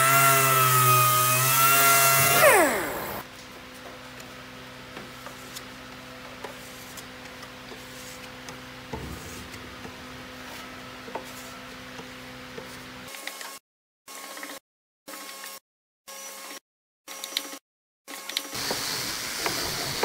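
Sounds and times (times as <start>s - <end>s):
pad rubbing and dabbing wood: 7.7s - 8.4s.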